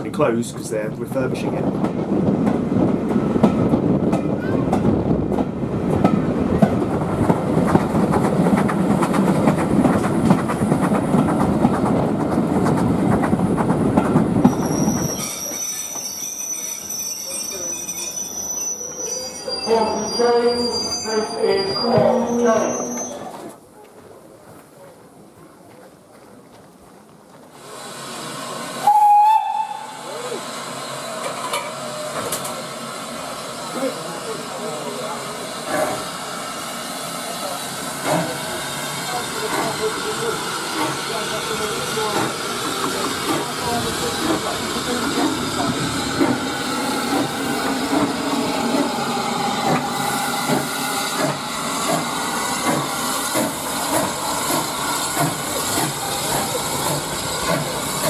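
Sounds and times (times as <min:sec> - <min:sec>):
steam hissing: 0:27.6 - 0:58.0
steam whistle blast: 0:28.8 - 0:30.2.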